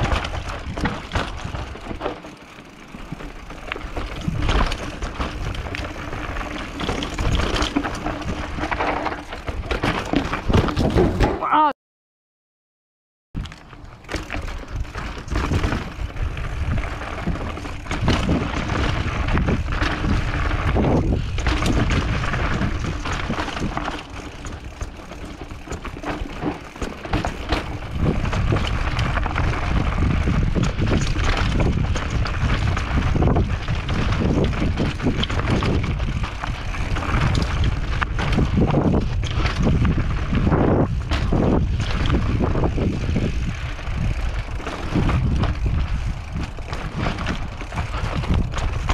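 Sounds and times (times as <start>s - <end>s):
bike clattering over bumps: 0.0s - 11.6s, 13.4s - 48.9s
tyres rolling on dirt trail: 0.0s - 11.6s, 13.4s - 48.9s
wind buffeting microphone: 14.5s - 48.9s.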